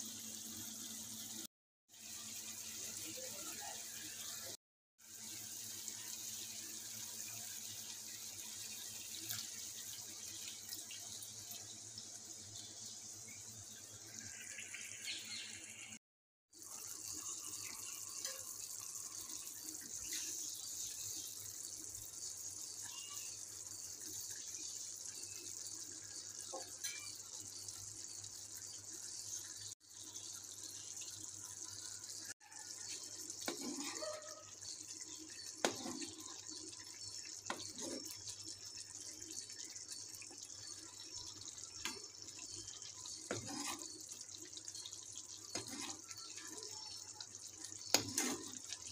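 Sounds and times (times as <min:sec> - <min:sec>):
chicken frying in oil: 0:00.0 - 0:48.9
knocks or scrapes: 0:33.4 - 0:34.2, 0:43.3 - 0:43.9, 0:47.9 - 0:48.6.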